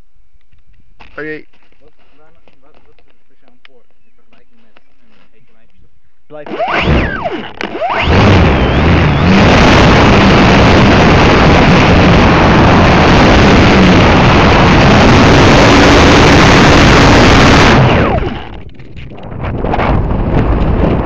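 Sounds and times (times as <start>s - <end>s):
faint steady motor hum: 0.0s - 18.7s
wind over microphone: 1.3s - 21.0s
propeller rushing: 6.3s - 21.0s.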